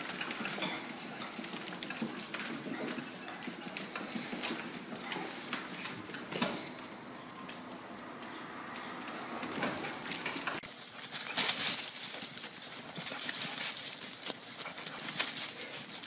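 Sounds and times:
dog feet rustling through dry leaves: 0:10.8 - 0:16.0.

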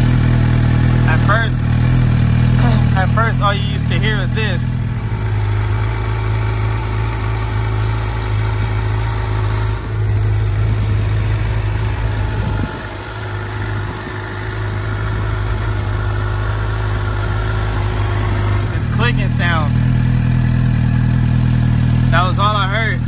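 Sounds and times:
motorcycle engine idling: 0:00.0 - 0:23.0.

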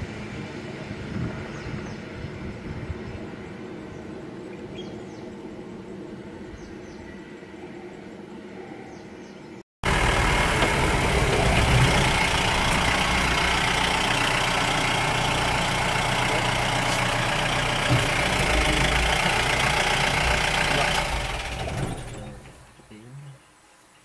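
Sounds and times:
vehicle engine idling: 0:09.8 - 0:23.2.

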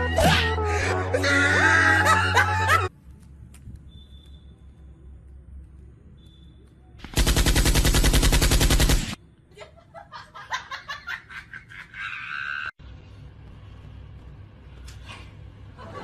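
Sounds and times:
machine-gun fire: 0:07.0 - 0:09.2.

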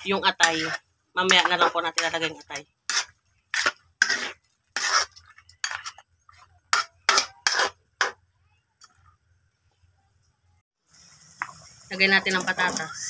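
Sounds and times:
metal ladle scraping a wok: 0:00.0 - 0:08.2.

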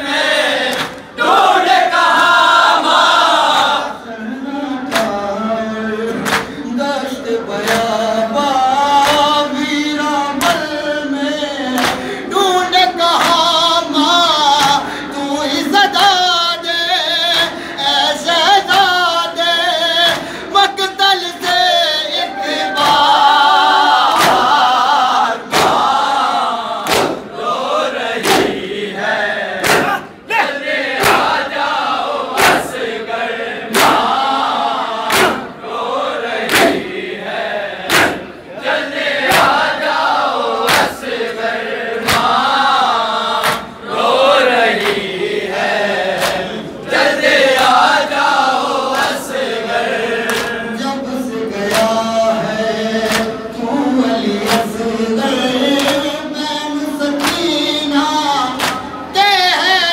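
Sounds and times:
hands slapping chests: 0:00.7 - 0:01.1, 0:04.9 - 0:05.2, 0:06.2 - 0:06.6, 0:07.6 - 0:08.0, 0:09.0 - 0:09.3, 0:11.8 - 0:12.1, 0:13.2 - 0:13.4, 0:24.1 - 0:24.6, 0:25.5 - 0:25.9, 0:26.8 - 0:27.3, 0:28.2 - 0:28.6, 0:29.6 - 0:30.1, 0:31.0 - 0:31.4, 0:32.4 - 0:32.8, 0:33.7 - 0:34.1, 0:35.0 - 0:35.5, 0:36.4 - 0:36.9, 0:37.9 - 0:38.3, 0:39.2 - 0:39.7, 0:40.6 - 0:41.1, 0:42.0 - 0:42.4, 0:43.4 - 0:43.7, 0:44.7 - 0:45.1, 0:46.2 - 0:46.5, 0:50.2 - 0:50.6, 0:51.7 - 0:52.0, 0:53.0 - 0:53.4, 0:54.4 - 0:54.7, 0:55.8 - 0:56.1, 0:57.2 - 0:57.5, 0:58.5 - 0:58.9
man singing into a microphone: 0:03.9 - 0:23.7, 0:47.6 - 0:59.9.

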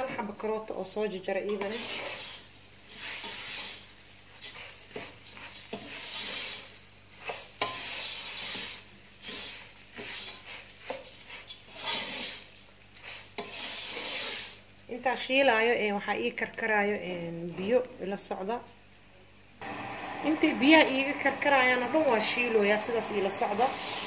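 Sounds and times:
light sizzle: 0:00.0 - 0:24.0
wooden spoon scraping pot: 0:01.5 - 0:14.6, 0:22.4 - 0:24.0.

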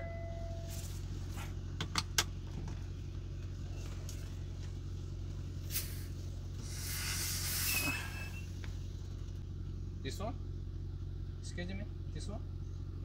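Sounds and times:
diesel engine idling: 0:00.0 - 0:13.0
air hiss: 0:05.6 - 0:08.7.

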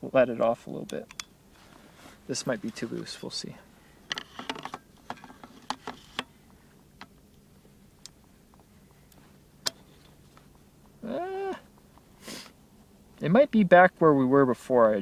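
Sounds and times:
man humming: 0:11.0 - 0:11.7.

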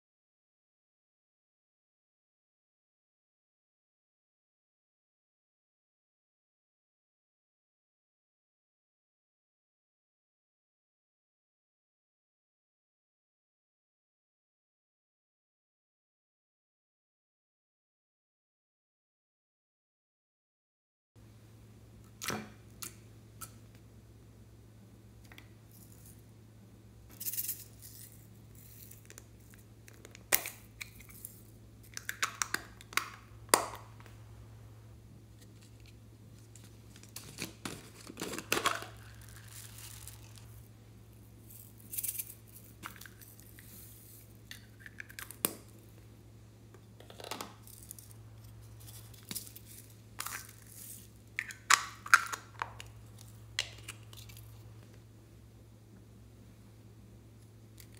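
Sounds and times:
steady low hum: 0:21.2 - 0:57.9
plastic containers clicking and rattling: 0:37.2 - 0:39.4
beads poured onto slime: 0:38.8 - 0:40.6.

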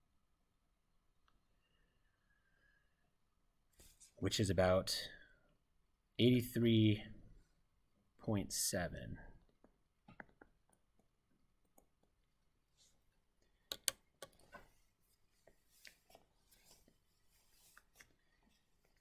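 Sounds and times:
stylus tapping on screen: 0:13.7 - 0:14.5.

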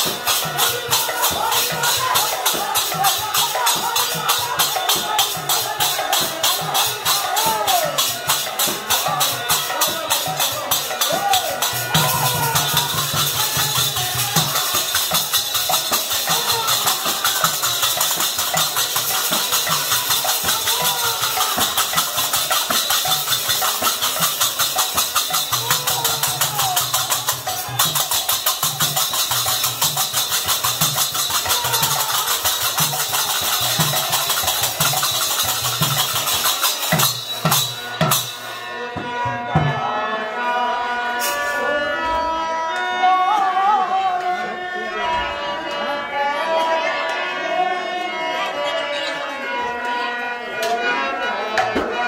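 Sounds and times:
drum rhythm: 0:00.0 - 0:38.6
hand cymbals: 0:00.0 - 0:38.6.

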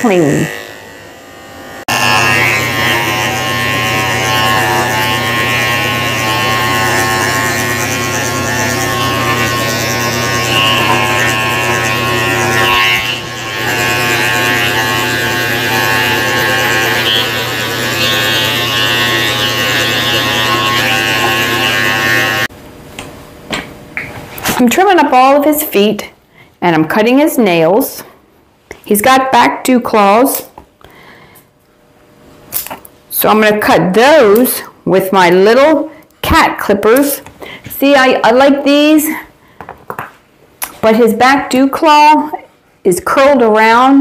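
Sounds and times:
electric clippers humming: 0:00.0 - 0:22.5.

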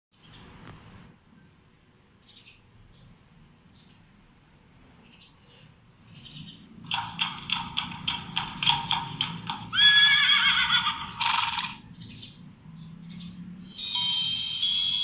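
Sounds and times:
hooves clip-clopping from speaker: 0:06.9 - 0:09.8
horse whinnying: 0:09.7 - 0:11.8.

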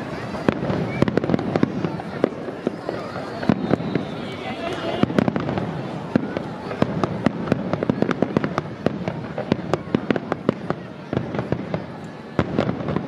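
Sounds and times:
fireworks bangs and crackles: 0:00.0 - 0:13.0.

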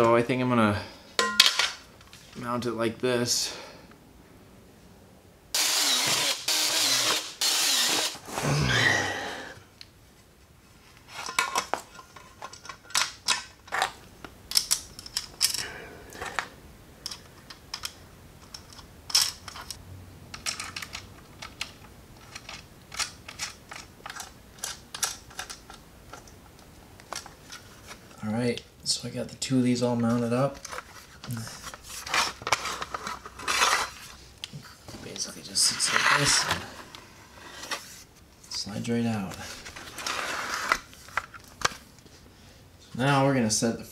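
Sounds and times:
cordless drill running: 0:05.6 - 0:08.2
metal parts clicking and clanking: 0:11.2 - 0:13.9, 0:14.5 - 0:16.4, 0:17.0 - 0:26.3.

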